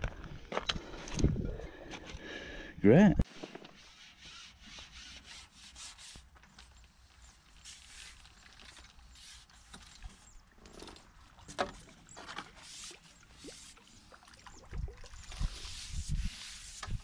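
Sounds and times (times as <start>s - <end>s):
fishing tackle clicks and rustles: 6.4s - 13.1s.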